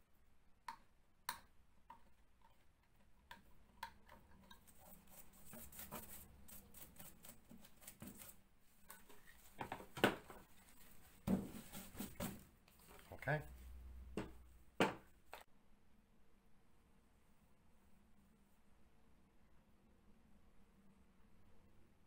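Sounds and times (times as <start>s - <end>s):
utility knife scratching plasterboard: 4.5s - 8.4s.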